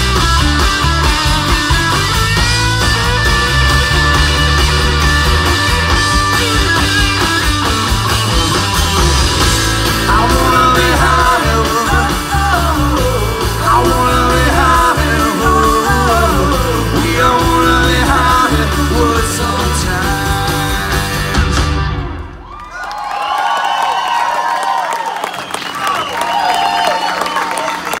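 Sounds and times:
wavering guitar lead line: 0:00.0 - 0:22.3
live rock band playing: 0:00.0 - 0:22.5.

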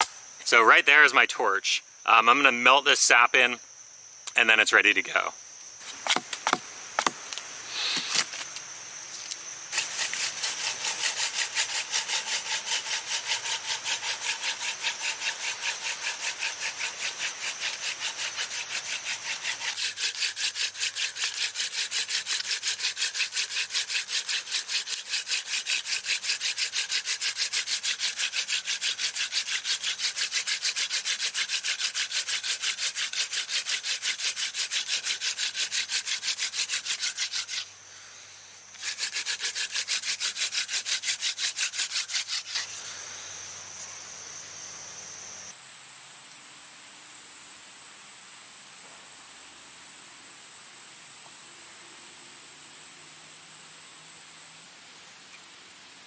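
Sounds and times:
wood rubbing on wood rasp: 0:09.7 - 0:37.7, 0:38.8 - 0:42.8.

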